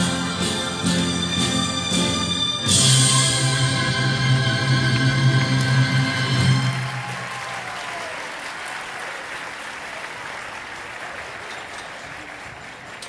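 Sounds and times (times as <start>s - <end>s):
audience applauding: 2.7s - 13.0s.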